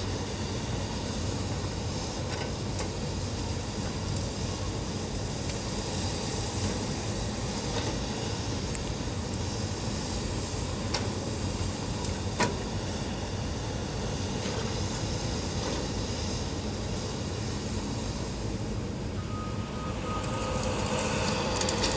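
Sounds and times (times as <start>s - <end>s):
diesel engine running: 18.8s - 21.9s.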